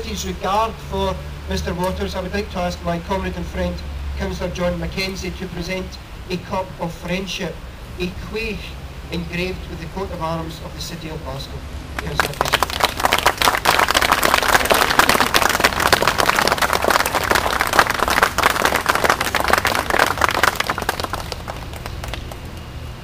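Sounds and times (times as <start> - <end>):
crowd clapping: 12.0 - 22.7.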